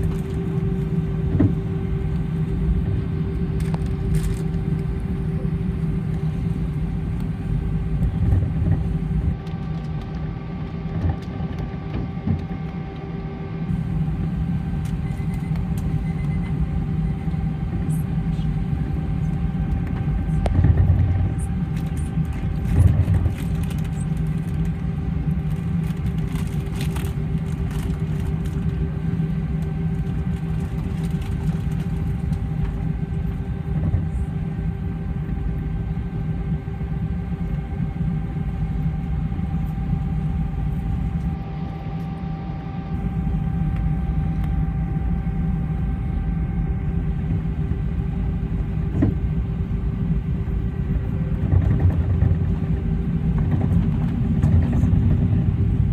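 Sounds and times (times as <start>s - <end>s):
aircraft engines rumbling with whine: 0.0s - 55.9s.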